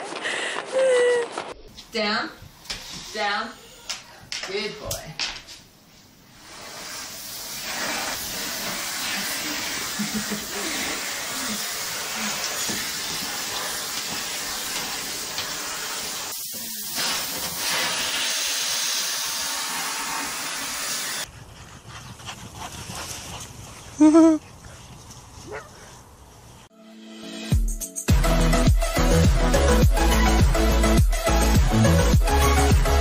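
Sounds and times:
vacuum cleaner suction hiss: 0:06.3 - 0:21.3.

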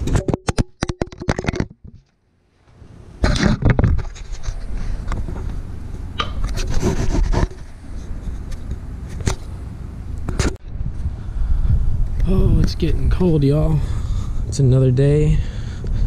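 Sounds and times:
microphone rubbing and fumbling: 0:00.0 - 0:02.1, 0:03.2 - 0:09.5
low rumble: 0:10.6 - 0:16.0.

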